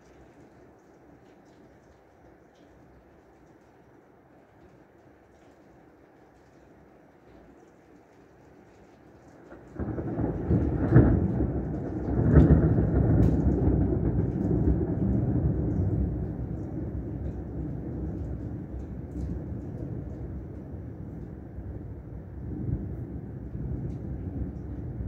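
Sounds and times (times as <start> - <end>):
heavy rain: 0.0 - 25.0
thunder rumbling: 9.5 - 25.0.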